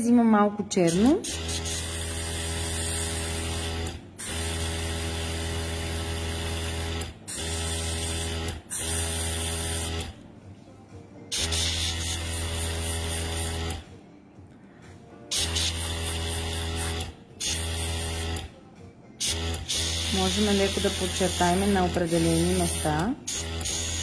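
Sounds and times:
airbrush compressor humming: 0.9s - 10.2s, 11.3s - 13.9s, 15.3s - 18.5s, 19.2s - 24.0s.

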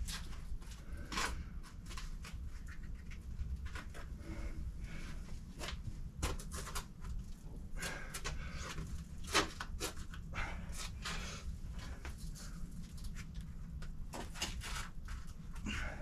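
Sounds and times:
steady low rumble: 0.0s - 16.0s
heavy forceful breathing: 4.1s - 5.6s, 7.6s - 9.2s, 10.2s - 12.8s, 15.6s - 16.0s.

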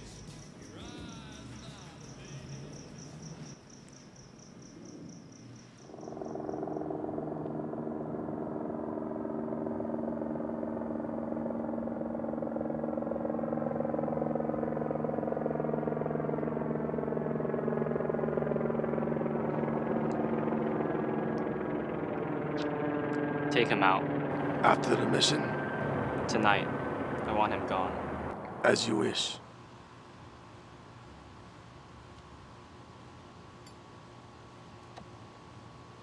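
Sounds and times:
crickets chirping: 0.0s - 13.8s
low synthesizer drone: 4.7s - 29.5s.

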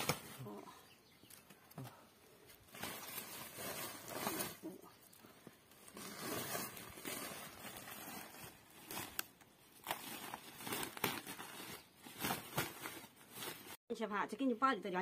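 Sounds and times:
plastic sack rustling: 2.6s - 4.7s, 5.6s - 13.8s.

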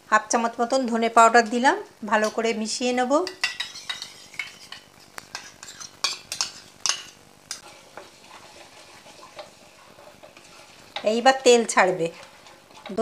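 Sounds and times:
food sizzling softly: 0.0s - 13.0s.

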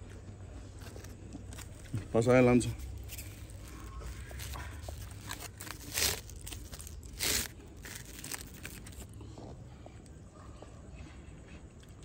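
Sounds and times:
aluminium foil crinkling: 0.7s - 9.2s.

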